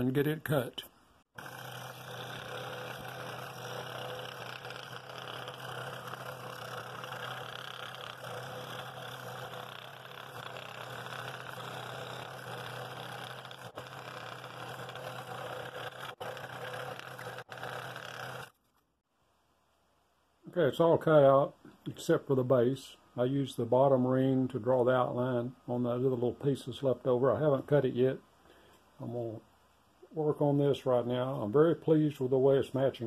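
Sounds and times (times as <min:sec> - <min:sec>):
scroll saw cutting wood: 0:01.4 - 0:18.6.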